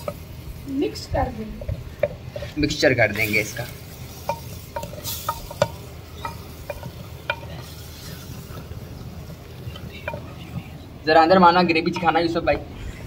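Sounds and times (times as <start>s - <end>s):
masala sizzling: 0.0s - 13.0s
wooden spoon knocking pot: 3.2s - 7.7s.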